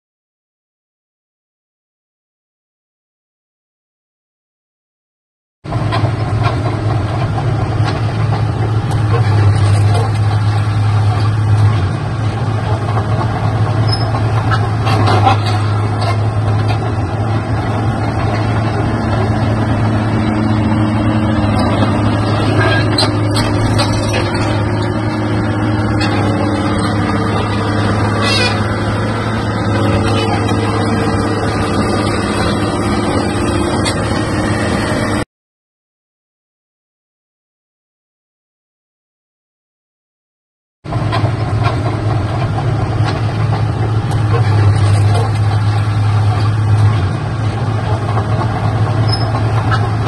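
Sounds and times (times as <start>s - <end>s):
excavator diesel engine droning: 5.7s - 35.2s, 40.9s - 50.0s.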